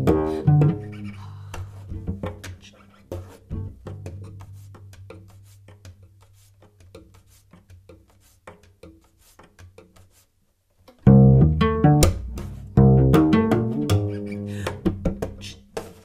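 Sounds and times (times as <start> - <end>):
finger taps on cello: 0.0 - 10.0, 11.0 - 16.0
loud plucked low cello chord: 11.1 - 14.2.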